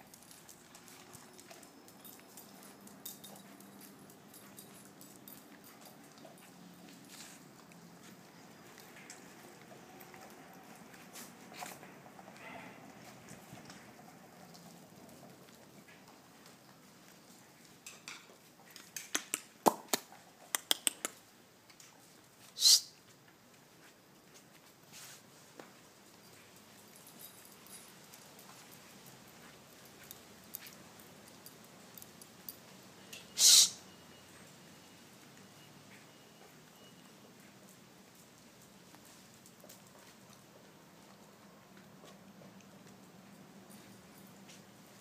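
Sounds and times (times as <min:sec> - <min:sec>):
dog paws on gravel: 0:00.0 - 0:19.0
puppy claws clicking on tiles: 0:17.9 - 0:21.2.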